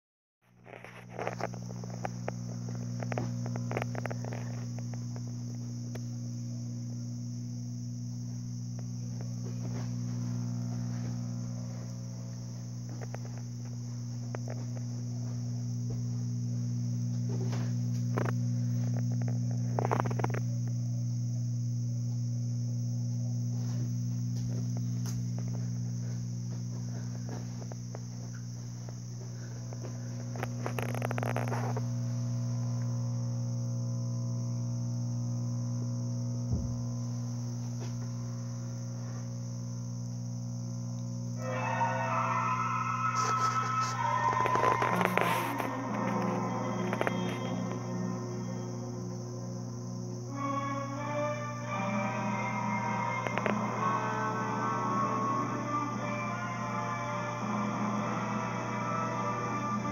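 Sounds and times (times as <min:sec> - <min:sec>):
television low hum: 0:00.4 - 0:59.9
television high hiss: 0:41.1 - 0:49.3, 0:50.1 - 0:59.9.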